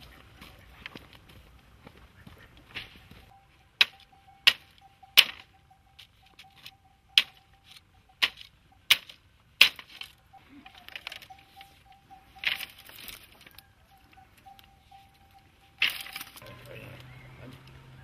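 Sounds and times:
sticks knocking: 2.8s - 16.4s
faint steady high tone: 3.1s - 18.0s.

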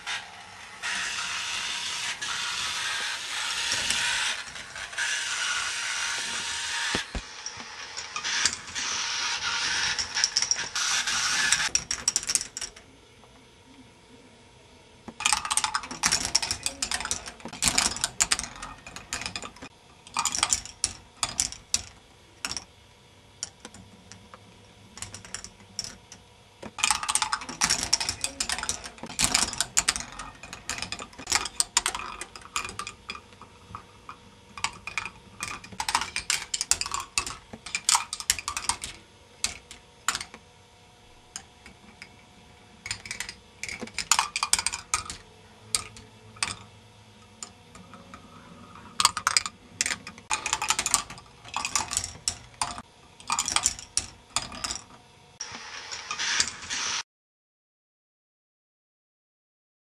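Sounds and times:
plastic balls clattering on tracks: 15.1s - 22.7s, 25.0s - 40.4s, 42.9s - 46.7s, 48.9s - 57.0s.

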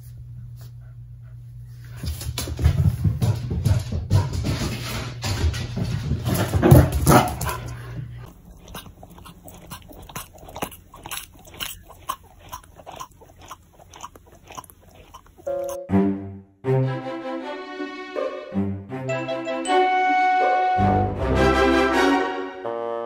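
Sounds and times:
puppy chewing rubber toy: 7.0s - 15.8s
music: 15.5s - 23.0s.

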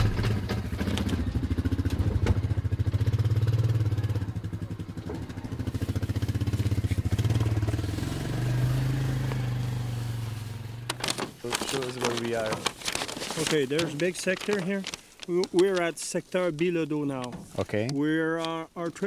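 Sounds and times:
atv engine revving: 0.0s - 11.1s.

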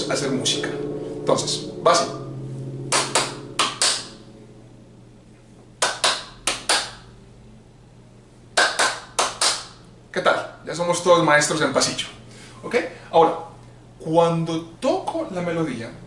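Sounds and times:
hand claps: 2.9s - 4.1s, 5.8s - 7.0s, 8.6s - 9.8s.

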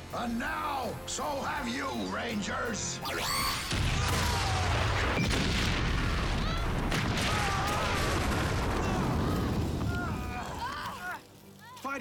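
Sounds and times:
explosions: 3.5s - 10.4s.

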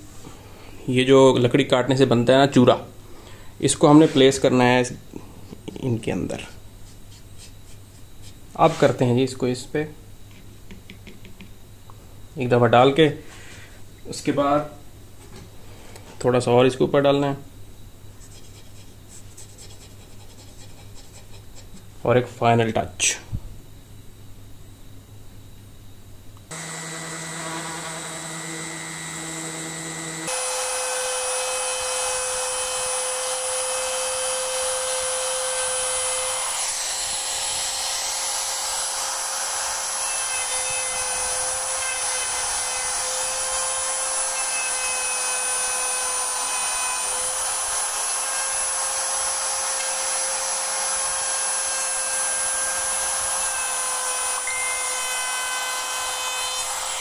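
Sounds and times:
orbital sander on wood: 26.5s - 57.0s
router whining cutting wood: 26.5s - 57.0s.

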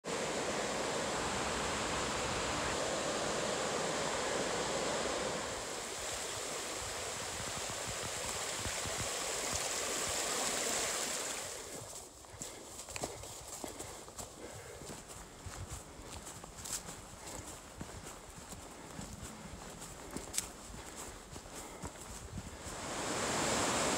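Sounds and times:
creek rushing over rocks: 0.0s - 12.9s, 14.2s - 23.9s
footsteps crunching dry leaves: 11.4s - 22.9s.

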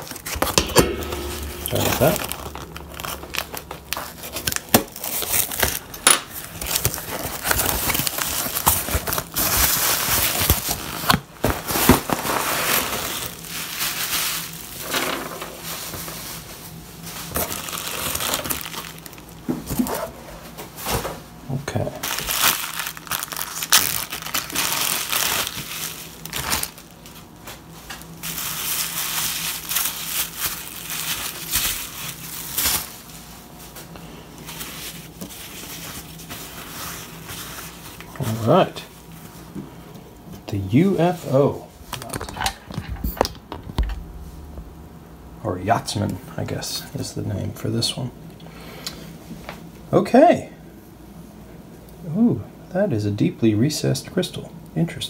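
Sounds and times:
bubble wrap crinkling: 1.4s - 14.9s, 15.6s - 19.4s, 21.9s - 33.8s, 34.4s - 38.9s.

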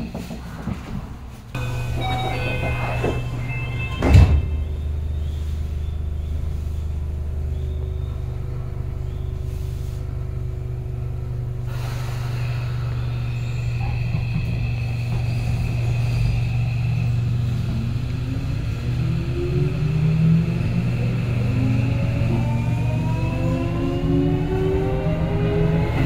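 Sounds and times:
train rumbling and humming: 0.0s - 26.0s
faint steady tones: 1.6s - 9.8s.

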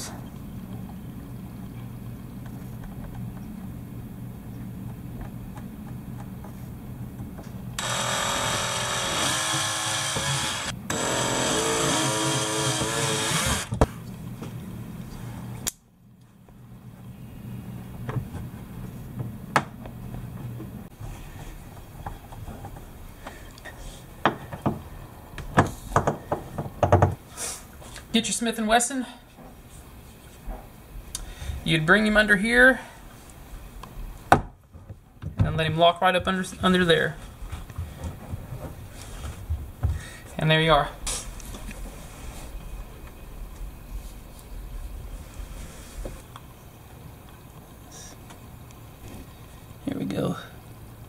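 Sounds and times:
low steady hum: 0.0s - 51.0s
power drill drilling plastic: 7.8s - 13.7s.

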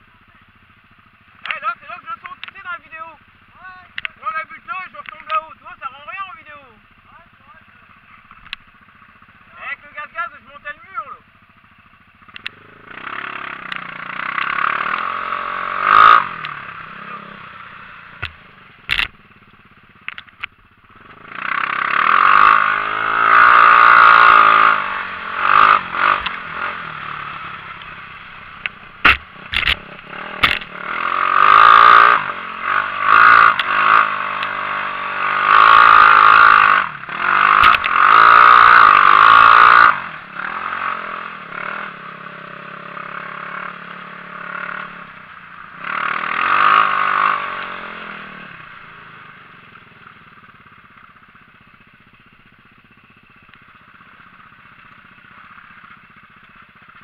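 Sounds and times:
buggy engine revving: 0.0s - 57.0s
sharp knocks and clatters: 18.2s - 19.2s, 28.6s - 30.8s.

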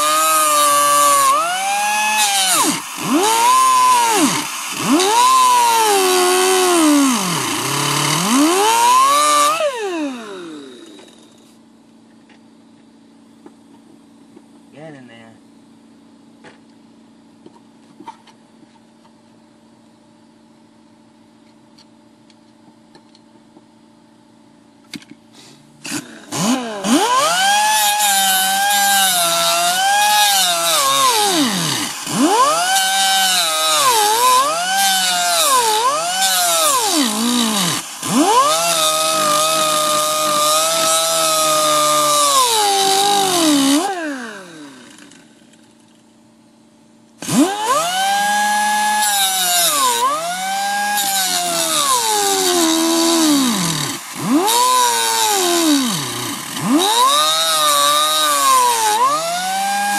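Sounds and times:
grinder cutting sheet metal: 0.0s - 11.3s, 25.9s - 45.3s, 47.2s - 59.9s.

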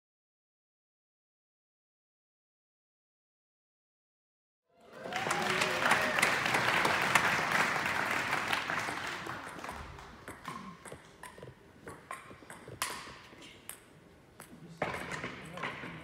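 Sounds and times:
audience applause: 4.8s - 10.2s.

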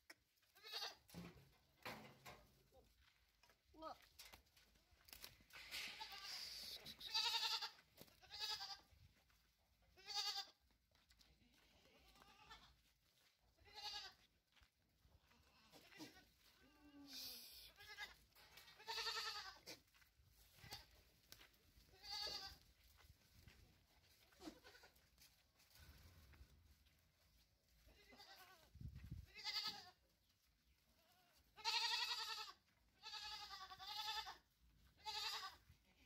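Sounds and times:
goats bleating: 0.6s - 1.1s, 6.0s - 8.9s, 10.0s - 10.6s, 13.6s - 14.3s, 15.4s - 20.0s, 21.9s - 22.6s, 27.9s - 28.6s, 29.3s - 30.0s, 31.0s - 34.4s, 35.0s - 36.0s.

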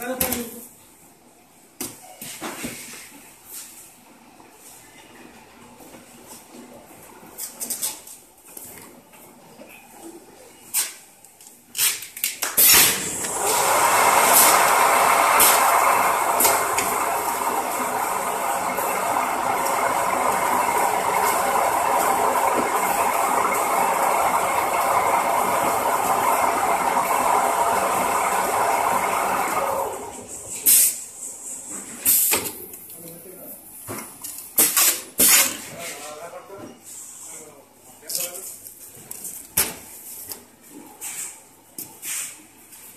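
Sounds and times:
wrapping machine running: 12.6s - 30.9s.

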